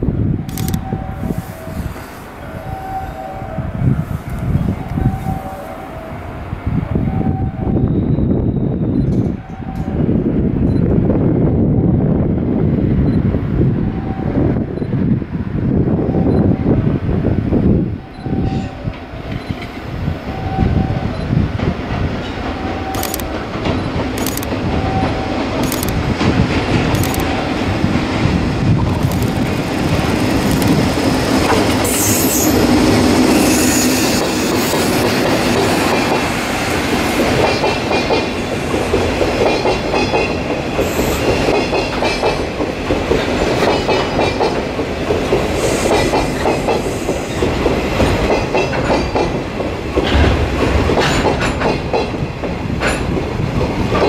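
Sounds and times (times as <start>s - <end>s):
train wheels clattering over joints: 34.1s - 54.0s.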